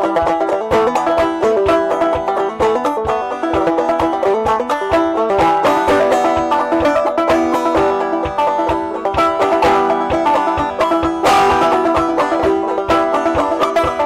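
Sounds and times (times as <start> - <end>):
banjo playing: 0.0 - 14.0.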